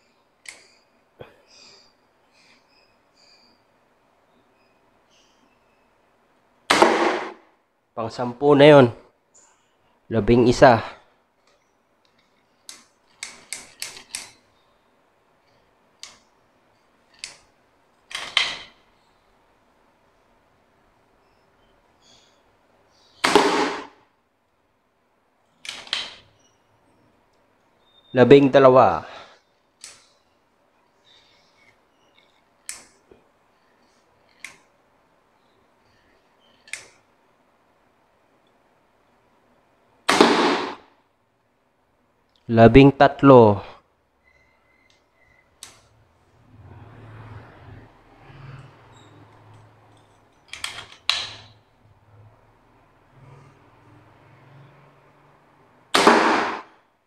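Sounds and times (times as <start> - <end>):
air gun clicks and clatters: 12.0 - 14.4.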